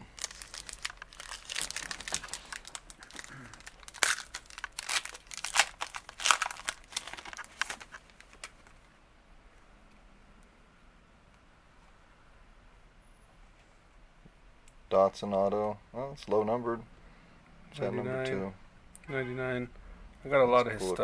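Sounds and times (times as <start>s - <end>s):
foil wrapper tearing and crinkling: 0.0s - 8.7s.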